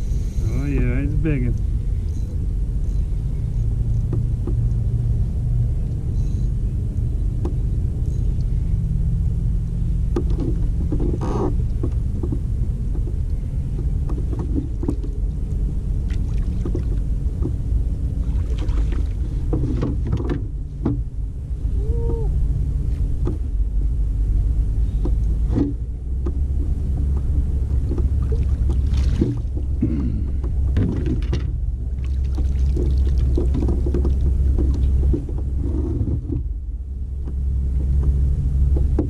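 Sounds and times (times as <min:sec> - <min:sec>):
steady low rumble: 0:00.0 - 0:39.0
gear knocking on hull: 0:16.1 - 0:21.1, 0:25.0 - 0:36.6.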